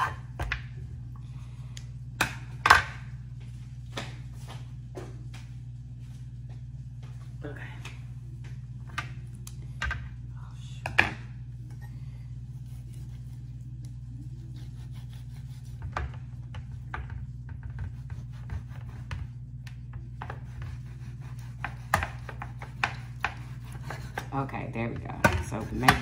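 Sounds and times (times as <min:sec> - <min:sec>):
steady low hum: 0:00.0 - 0:26.0
knife cutting through meat: 0:14.4 - 0:15.8
blade scraping and tapping on pan: 0:21.6 - 0:26.0.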